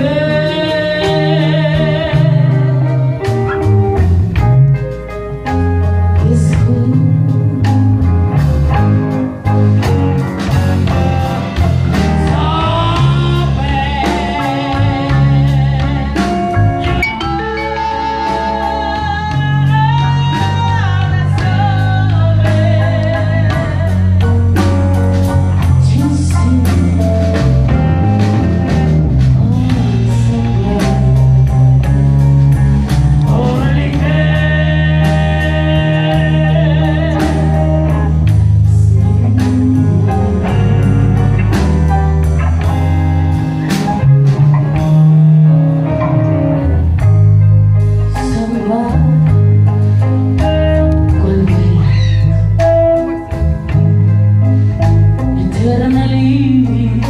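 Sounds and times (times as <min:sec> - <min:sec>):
woman singing: 0:00.0 - 0:03.6, 0:06.2 - 0:08.2, 0:11.2 - 0:27.8, 0:29.2 - 0:31.9, 0:33.1 - 0:41.8, 0:48.1 - 0:53.1, 0:55.4 - 0:57.0
blues band playing: 0:00.0 - 0:57.0.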